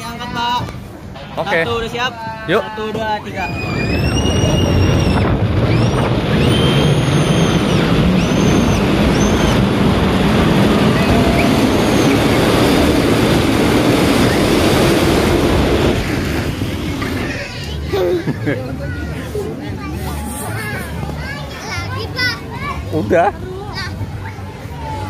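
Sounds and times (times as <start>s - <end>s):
snow tubes sliding rumble: 0.0s - 23.2s
wind buffeting microphone: 2.9s - 17.4s.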